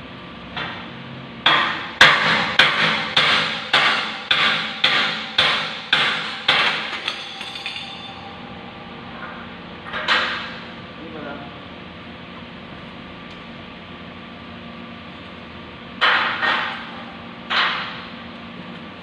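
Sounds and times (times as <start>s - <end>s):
hammer striking steel: 1.5s - 8.4s.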